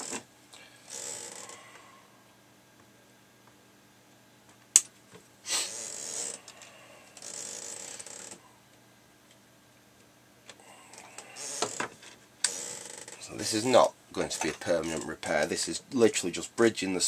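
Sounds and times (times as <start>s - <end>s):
hissing rasping noises: 10.6s - 11.9s.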